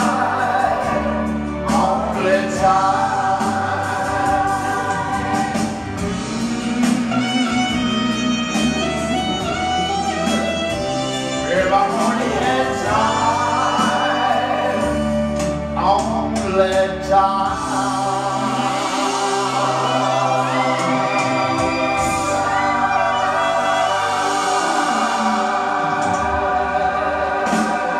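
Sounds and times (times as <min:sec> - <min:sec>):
man singing into microphone: 0:00.0 - 0:05.1, 0:11.4 - 0:21.4
choir-like backing voices: 0:00.0 - 0:27.9
recorded musical accompaniment: 0:00.0 - 0:27.9.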